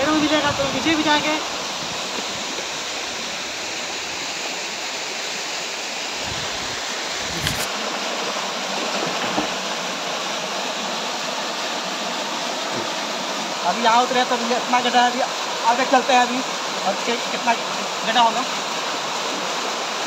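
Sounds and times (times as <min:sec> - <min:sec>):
waterfall pouring over rock: 0:00.0 - 0:20.0.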